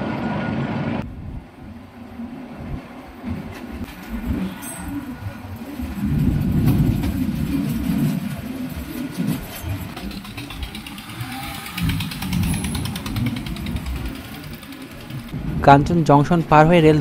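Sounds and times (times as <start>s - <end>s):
train rumble: 0.0s - 17.0s
wind on microphone: 0.4s - 17.0s
rapid faint ticking: 9.8s - 15.4s.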